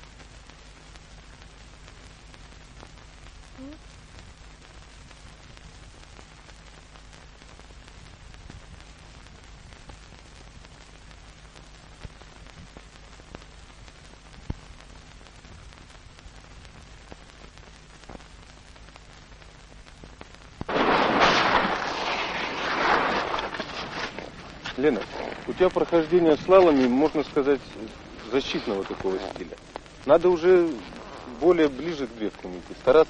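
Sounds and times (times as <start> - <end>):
film soundtrack hiss and hum: 0.0 - 33.0
skis scraping across snow: 22.0 - 29.6.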